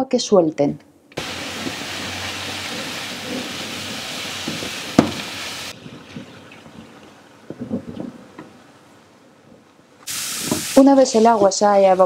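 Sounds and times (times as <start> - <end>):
mushrooms sizzling in a frying pan: 1.2 - 5.7, 10.1 - 12.0
sharp knock: 5.0 - 5.3.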